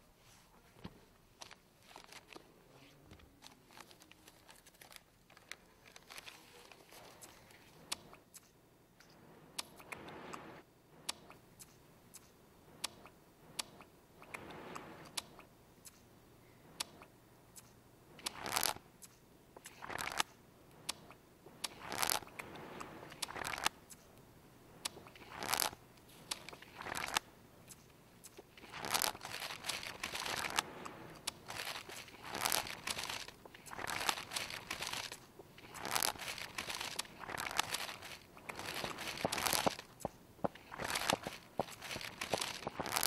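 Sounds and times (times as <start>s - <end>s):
paper crumpling and tearing: 1.4s - 7.8s, 21.7s - 22.3s, 23.1s - 23.7s, 25.1s - 43.0s
sharp regular ticks: 11.0s - 16.1s, 16.8s - 24.2s, 24.8s - 43.0s.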